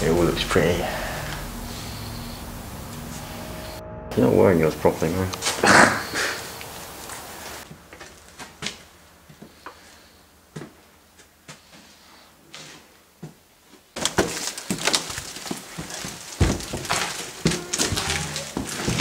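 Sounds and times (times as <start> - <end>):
soft footsteps: 12.6 - 19.0
footsteps climbing wooden stairs: 14.0 - 19.0.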